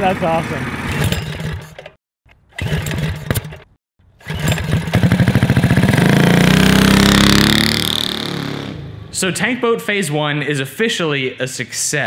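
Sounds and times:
engine starting and revving: 0.0 - 9.0.

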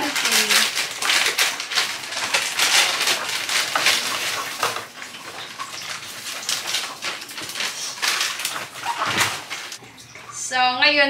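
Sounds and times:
dry noodles crackling and snapping: 0.0 - 9.8
plastic packets crinkling: 0.0 - 9.8.

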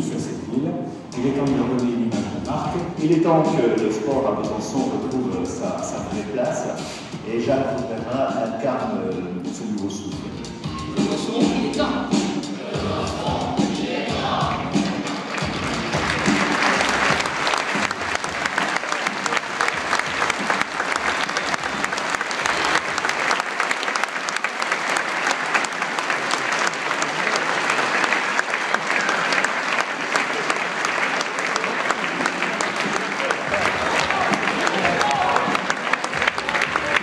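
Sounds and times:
large audience clapping: 14.5 - 37.0.

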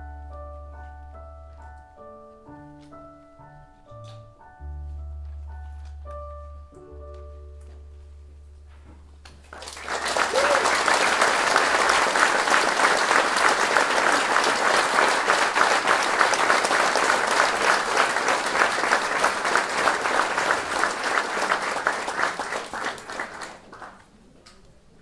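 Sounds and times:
audience applauding: 9.3 - 24.2.

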